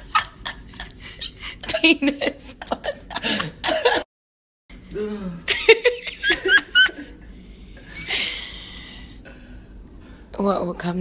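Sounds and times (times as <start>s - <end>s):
people giggling: 0.0s - 4.0s, 5.5s - 7.3s.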